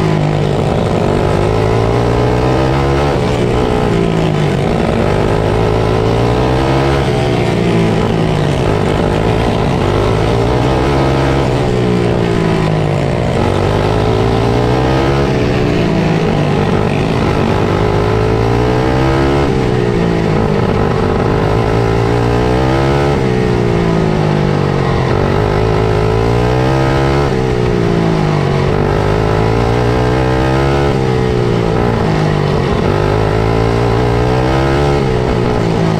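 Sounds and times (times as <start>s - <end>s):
kart engine revving: 0.0s - 35.9s.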